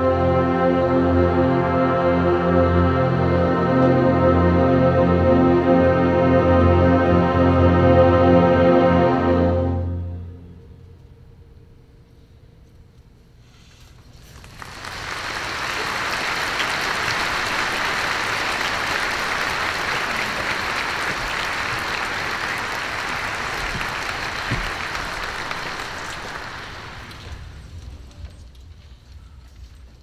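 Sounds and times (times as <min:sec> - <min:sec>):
audience applauding: 0:14.2 - 0:27.6.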